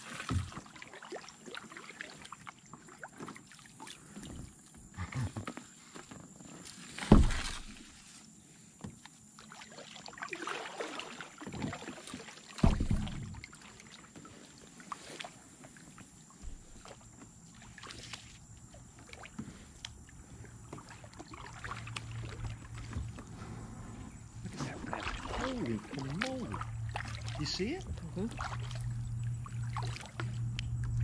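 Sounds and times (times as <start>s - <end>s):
paddles splashing in water: 0.0s - 31.0s
water dripping: 24.5s - 31.0s.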